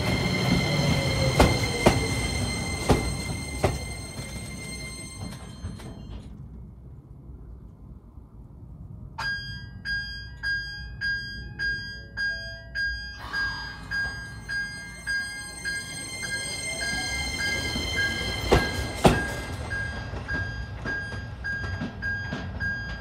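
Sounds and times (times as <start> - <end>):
low rumble of electric train: 0.0 - 23.0
electronic bell ringing: 2.2 - 6.1, 9.2 - 20.0.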